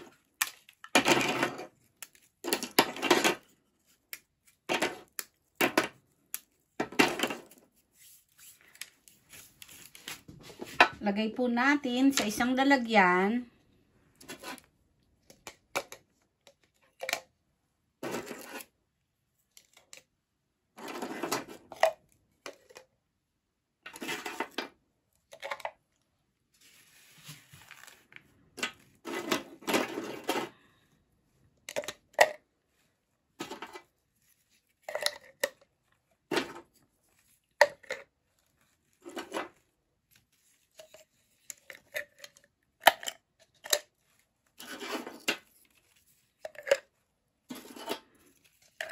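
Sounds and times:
baking paper rustling: 7.2 - 10.9, 26.5 - 30.4.

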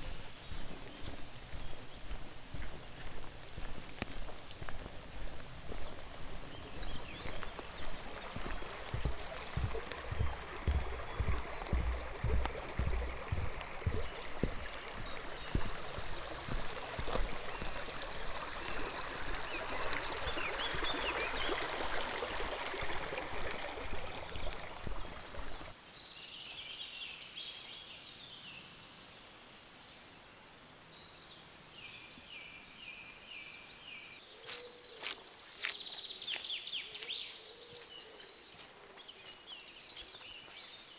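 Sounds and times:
footsteps on forest trail: 0.0 - 25.8, 34.3 - 40.9
stream rushing: 0.0 - 25.8
small birds chirping: 0.0 - 29.0, 30.9 - 40.9.

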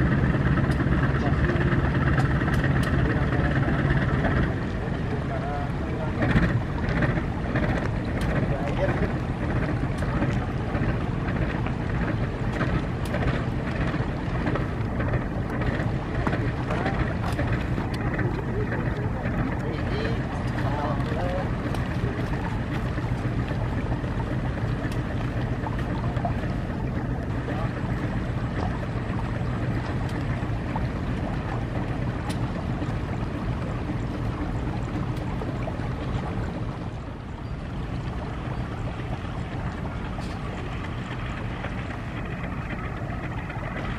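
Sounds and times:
diesel locomotive engine rumbling: 0.0 - 43.9
wind buffeting microphone: 0.0 - 43.9.

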